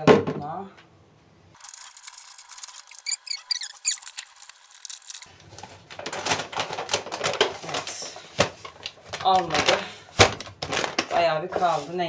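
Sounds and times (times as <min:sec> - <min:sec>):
plastic bag crinkling: 0:01.6 - 0:12.0
flour pouring into plastic bin: 0:07.1 - 0:12.0.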